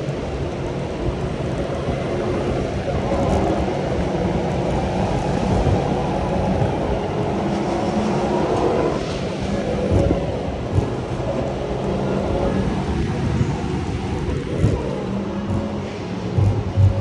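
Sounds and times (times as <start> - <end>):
go-kart engine rumble: 0.0 - 17.0.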